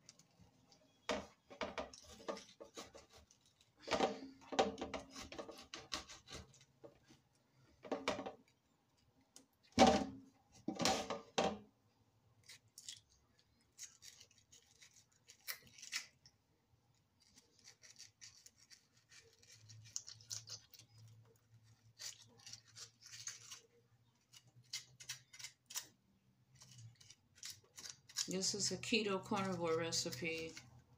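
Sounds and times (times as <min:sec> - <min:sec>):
serrated knife cutting tomato: 0:04.8 - 0:06.8.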